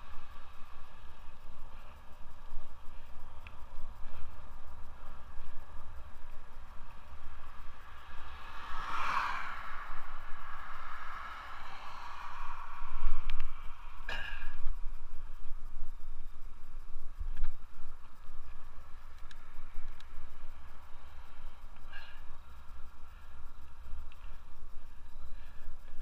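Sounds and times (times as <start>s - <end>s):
wind rumbling on microphone: 0.0s - 26.0s
vehicle passing: 7.1s - 14.1s.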